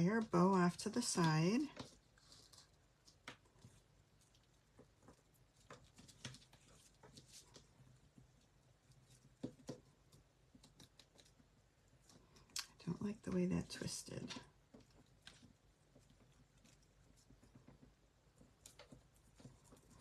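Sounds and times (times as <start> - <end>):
ribbon and cardstock rustling: 0.0 - 2.8.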